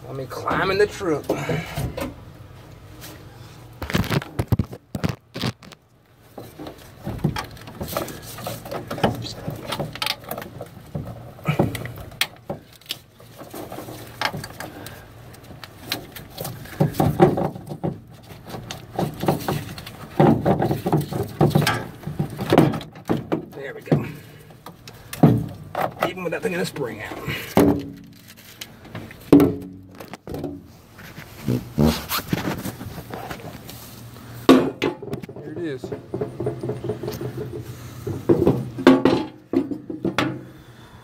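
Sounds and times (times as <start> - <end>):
rustling: 1.6 - 40.0
knocks and clicks of metal parts: 34.4 - 40.6.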